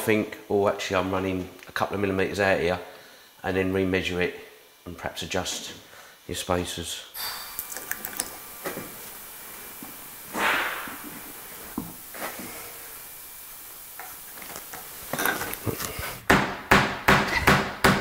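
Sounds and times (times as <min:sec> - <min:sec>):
glue bottle hissing splutter: 0:07.2 - 0:16.2.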